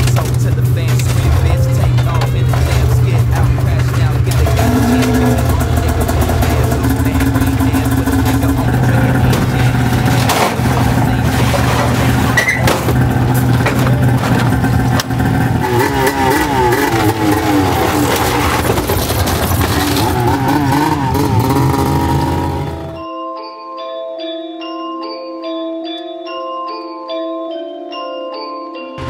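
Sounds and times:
two-stroke engine running: 0:00.0 - 0:23.0.

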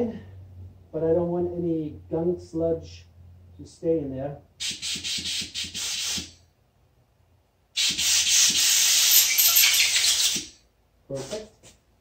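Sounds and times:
compressed air hissing: 0:04.6 - 0:06.4, 0:07.8 - 0:10.5.

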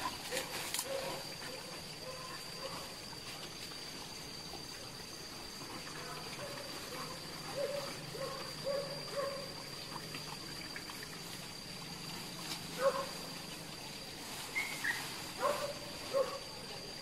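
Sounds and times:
dogs barking and yelping: 0:00.3 - 0:02.9, 0:06.4 - 0:09.7, 0:12.7 - 0:13.2, 0:14.6 - 0:16.6.

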